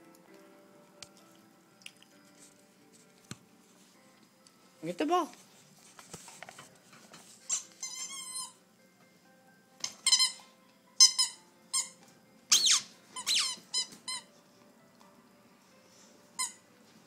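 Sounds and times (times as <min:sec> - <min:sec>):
squeaky toy squeaking: 0:07.5 - 0:08.6, 0:09.8 - 0:14.3, 0:16.4 - 0:16.6.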